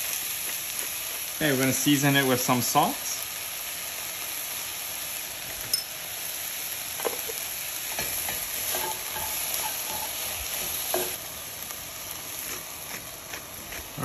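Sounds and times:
vegetables sizzling in oil: 0.0 - 14.0
spoon stirring vegetables: 7.1 - 11.2.

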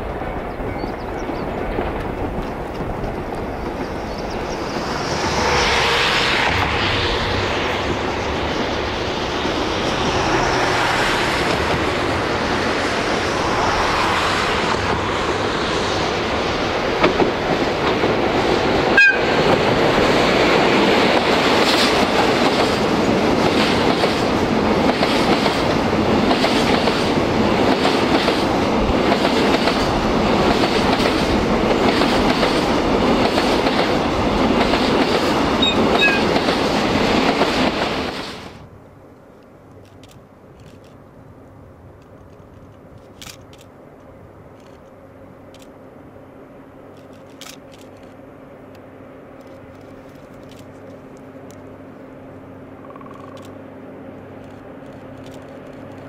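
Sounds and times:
train wheels clacking over rail joints: 0.0 - 12.9, 13.9 - 38.4
diesel locomotive engine: 0.0 - 56.0.

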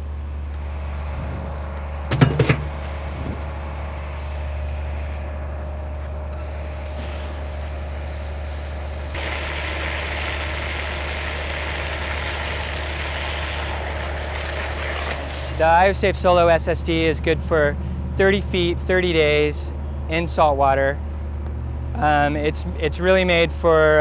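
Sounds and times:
diesel engine idling: 0.0 - 14.3, 15.3 - 24.0
metal knocking into steel bucket: 2.1 - 2.7
water hose spraying: 6.3 - 16.0.

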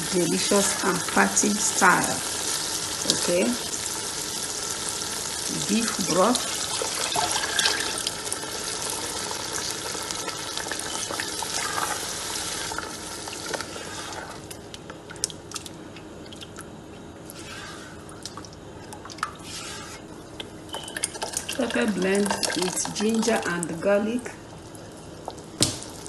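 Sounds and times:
broth pouring into a pot: 0.0 - 14.6, 20.9 - 23.6
stew sloshing while stirred: 11.0 - 20.2.

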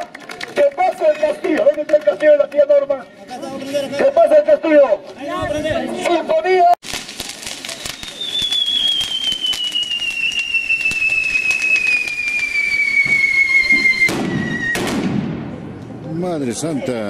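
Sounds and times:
firecracker bangs crackling: 6.8 - 15.8
falling firework whistle: 7.2 - 15.1.

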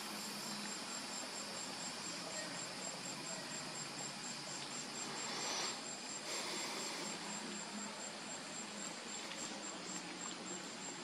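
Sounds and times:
crickets chirping: 0.0 - 11.0
rush of hiss: 4.5 - 7.6.

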